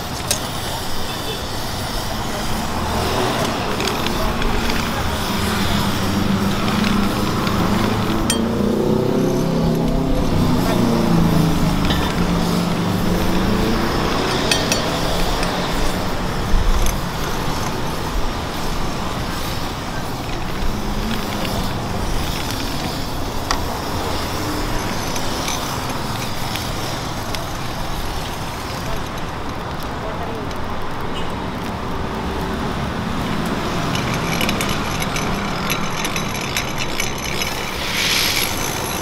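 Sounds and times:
roadside traffic: 0.0s - 39.0s
light clinks: 3.4s - 27.7s, 33.4s - 39.0s.

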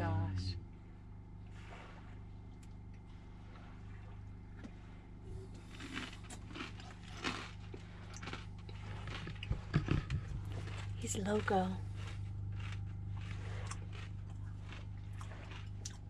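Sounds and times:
low hum: 0.0s - 16.0s
man swallowing and chewing: 4.1s - 16.0s.

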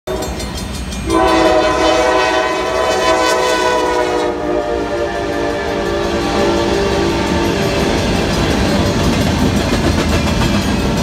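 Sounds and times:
crossing bell dinging: 0.1s - 11.0s
locomotive air horn: 1.0s - 7.6s.

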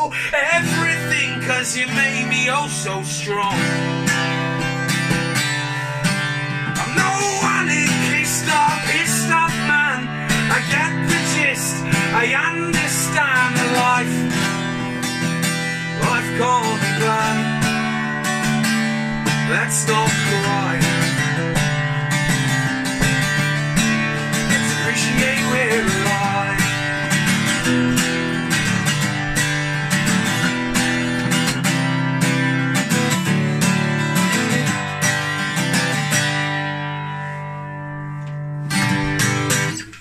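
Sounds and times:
man singing: 0.0s - 4.0s, 6.6s - 29.2s
acoustic guitar strumming: 0.0s - 40.0s.

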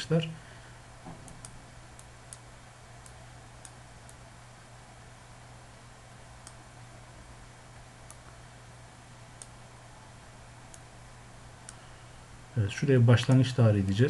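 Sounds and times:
low electrical hum: 0.0s - 14.0s
computer mouse clicks: 3.0s - 4.2s.

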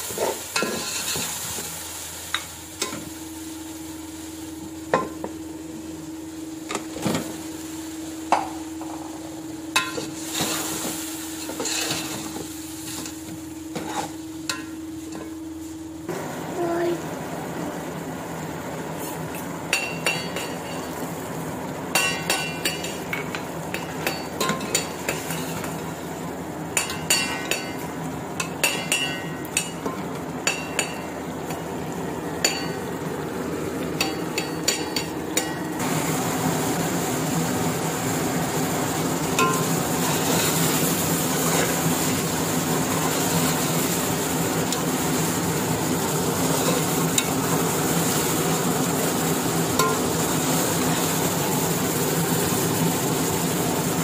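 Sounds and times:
chicken sizzling in oil: 0.0s - 54.0s.

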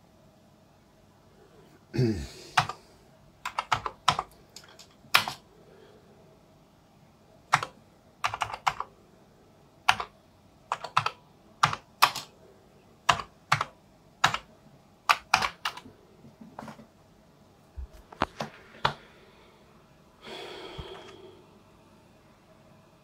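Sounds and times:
keyboard typing: 2.6s - 2.8s, 3.4s - 5.4s, 7.5s - 8.9s, 9.8s - 12.3s, 13.0s - 15.9s.

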